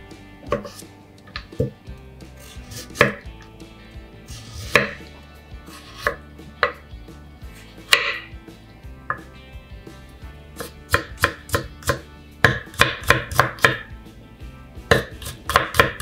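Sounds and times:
knife slicing carrot: 0.4s - 1.8s, 2.4s - 3.3s, 4.2s - 6.8s, 10.6s - 13.9s, 14.8s - 16.0s.

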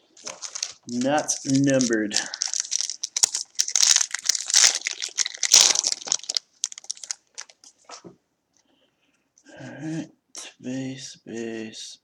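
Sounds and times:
foil wrapper crinkling: 0.0s - 7.7s
cards rustling and clicking: 0.2s - 7.6s.

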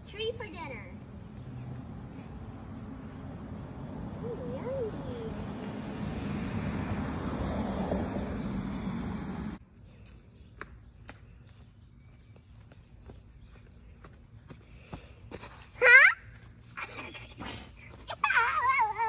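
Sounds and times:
low hum: 0.9s - 9.6s.

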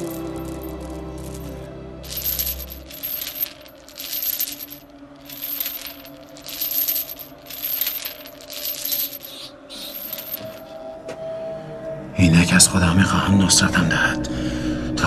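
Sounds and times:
metal chains jingling: 0.0s - 10.7s.

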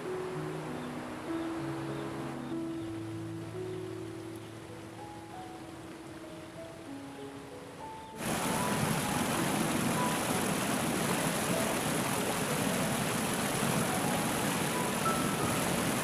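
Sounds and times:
soft background music: 0.0s - 16.0s
stream rushing down cascade: 8.1s - 16.0s.

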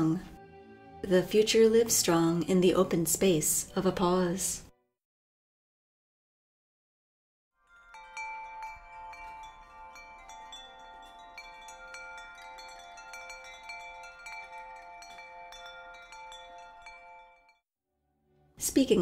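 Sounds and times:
wind chimes ringing: 7.6s - 17.6s.

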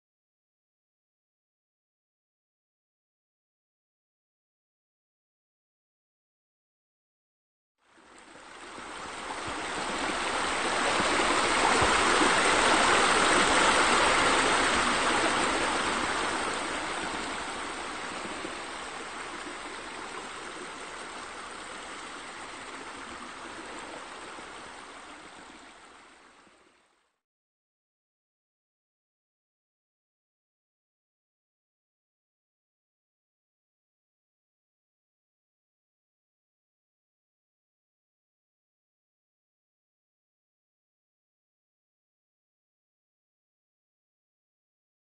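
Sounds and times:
stream rushing: 8.0s - 26.8s.

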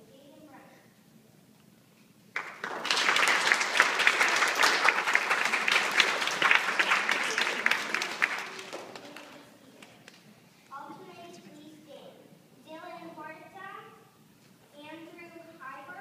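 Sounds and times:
children applauding: 2.4s - 10.2s.

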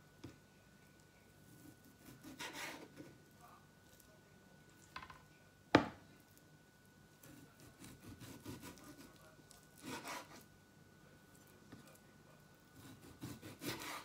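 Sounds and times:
knife cutting meat: 1.5s - 3.1s, 7.2s - 10.5s, 12.8s - 14.0s
knife scraping rasp: 1.5s - 3.1s, 7.2s - 9.2s, 9.8s - 10.4s, 12.8s - 14.0s
knife knocking on cutting board: 5.8s - 6.0s.

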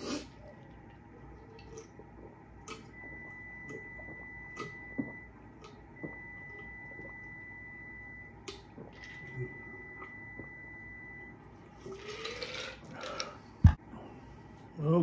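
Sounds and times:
man gulping a drink: 8.5s - 10.6s.

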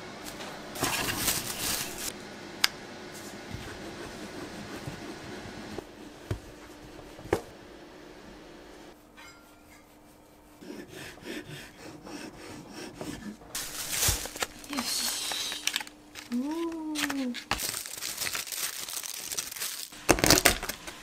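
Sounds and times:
cardboard box rustling: 13.6s - 16.4s.

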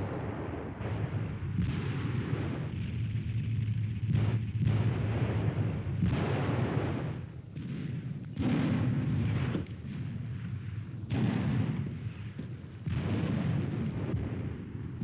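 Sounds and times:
explosions with low rumble: 0.0s - 15.0s.

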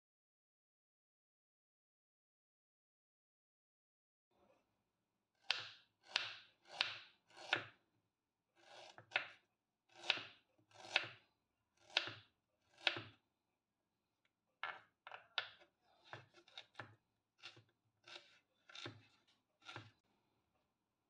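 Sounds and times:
knife cutting onto wooden board: 8.6s - 11.2s, 11.9s - 13.1s, 15.5s - 20.0s.

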